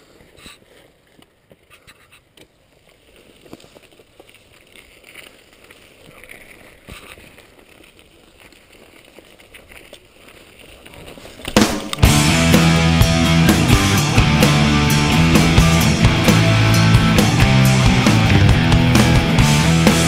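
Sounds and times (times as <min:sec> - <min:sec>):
bike tyres on gravel: 0:00.0 - 0:20.0
loud rock music: 0:11.7 - 0:20.0.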